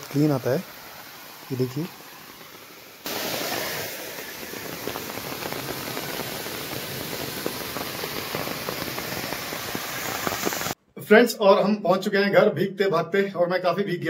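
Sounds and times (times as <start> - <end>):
water rushing down drain: 3.1 - 10.8
raindrop ticks: 4.4 - 10.8.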